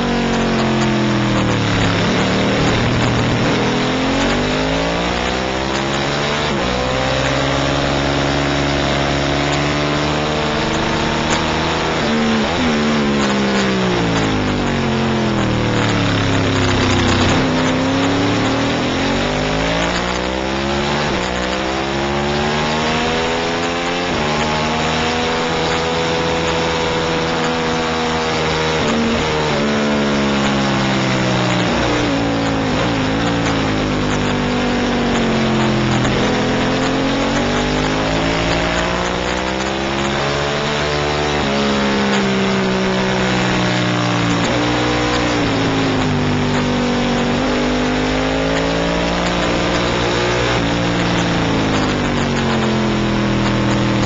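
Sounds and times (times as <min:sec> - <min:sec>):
rushing noise: 0:00.0 - 0:05.2
motorcycle engine at speed: 0:00.0 - 0:54.0.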